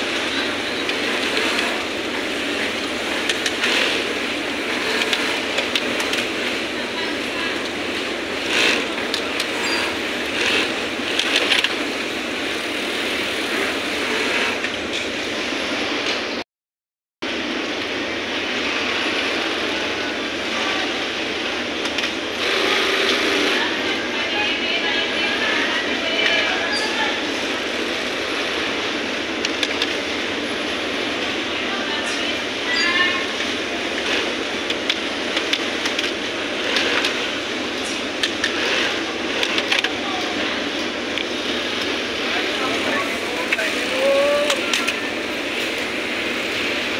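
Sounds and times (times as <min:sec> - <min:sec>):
sewing machines running: 0:00.0 - 0:16.0, 0:18.2 - 0:46.9
clatter of clicks: 0:11.1 - 0:11.8, 0:29.4 - 0:30.0, 0:34.0 - 0:37.2, 0:37.8 - 0:40.0.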